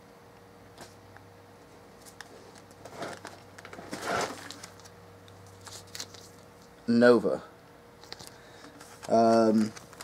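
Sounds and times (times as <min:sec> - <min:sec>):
comic books rustling: 0:02.0 - 0:04.9, 0:08.1 - 0:10.0.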